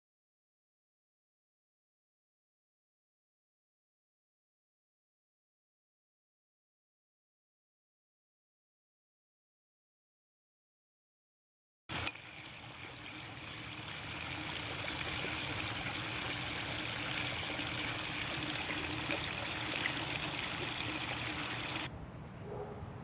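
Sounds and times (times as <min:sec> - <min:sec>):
running water rushing: 0:11.9 - 0:21.9.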